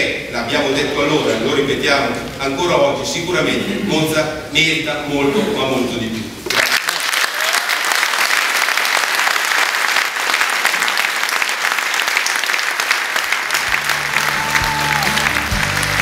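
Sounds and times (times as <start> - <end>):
audience applauding: 6.5 - 16.0
music: 13.6 - 16.0.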